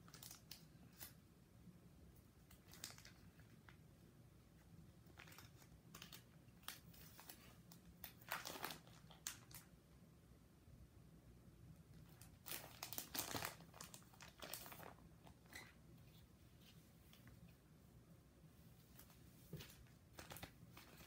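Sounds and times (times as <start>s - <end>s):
plastic binder pages crinkling: 0.0s - 1.2s, 2.4s - 3.8s, 5.0s - 9.7s, 12.0s - 17.4s, 18.9s - 21.0s.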